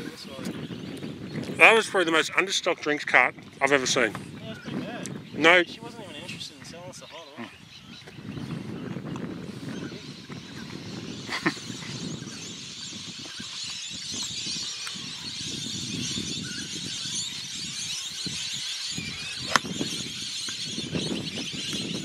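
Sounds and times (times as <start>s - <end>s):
golf club striking ball: 19.4s - 19.7s.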